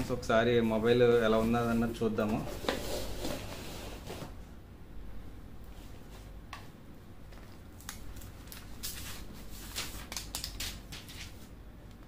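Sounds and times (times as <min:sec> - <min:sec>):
plastic film crackling: 0:07.3 - 0:11.2.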